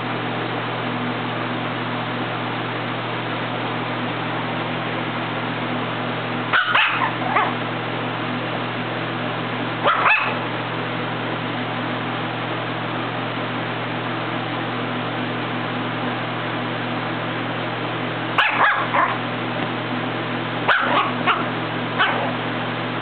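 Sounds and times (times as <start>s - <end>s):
low background hum: 0.0s - 23.0s
puppy yipping barks: 6.5s - 7.6s, 9.8s - 10.5s, 18.4s - 19.2s, 20.7s - 22.4s.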